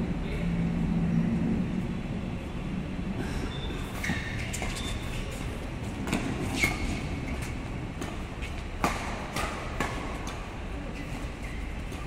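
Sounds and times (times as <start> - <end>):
low hall rumble: 0.0 - 12.0
shoes squeaking on court: 3.5 - 9.6
racket striking shuttlecock: 8.0 - 10.5.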